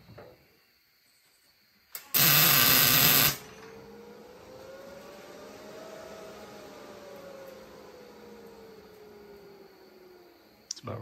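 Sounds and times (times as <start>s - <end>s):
steady hum with faint tone: 0.0s - 11.0s
welder arc crackle: 2.0s - 3.9s.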